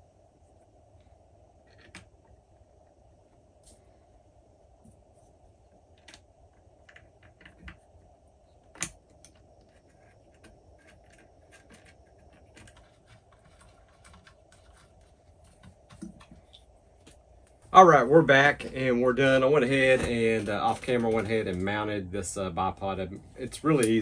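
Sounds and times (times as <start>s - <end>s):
small parts clicking and tapping: 8.6s - 17.2s.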